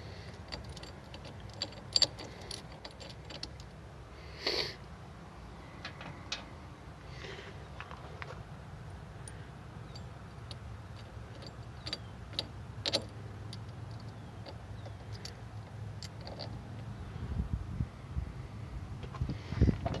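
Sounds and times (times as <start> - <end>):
metal nuts and washers clinking: 0.0 - 3.8, 5.8 - 6.6, 9.2 - 17.0
low steady rumble: 8.4 - 20.0.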